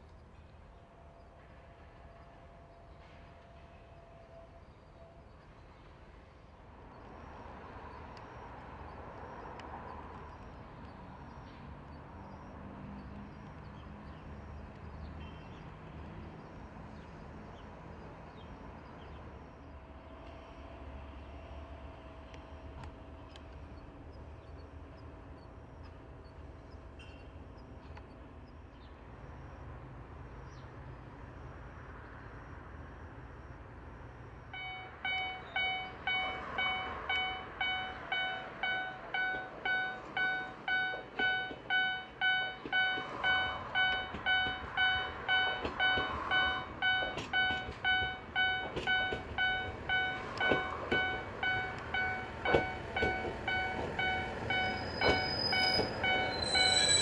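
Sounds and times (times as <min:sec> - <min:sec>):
diesel railcar approaching: 0:00.0 - 0:57.0
level crossing warning bell: 0:34.6 - 0:57.0
wheels clicking over rail joints: 0:35.1 - 0:57.0.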